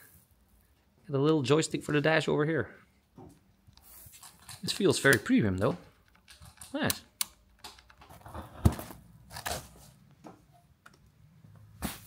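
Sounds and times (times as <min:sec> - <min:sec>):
plastic cover rustling and tearing: 0:08.1 - 0:10.0.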